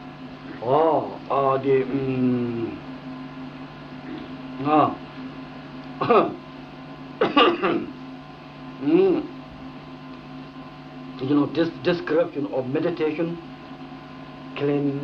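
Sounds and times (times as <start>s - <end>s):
low electrical hum: 0.0s - 15.0s
man speaking: 0.6s - 2.8s, 11.2s - 13.4s.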